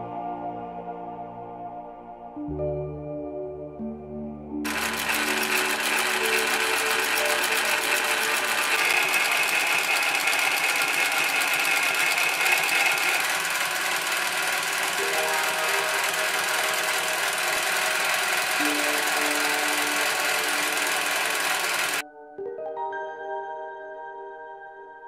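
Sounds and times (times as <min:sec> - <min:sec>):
industrial sewing machine running: 0:04.7 - 0:22.0.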